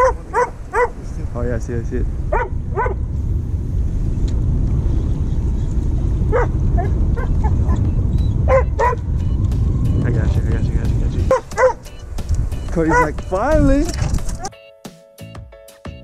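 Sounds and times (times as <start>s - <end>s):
wind rumble on microphone: 0.0s - 14.5s
dog whining and yipping: 11.3s - 11.8s.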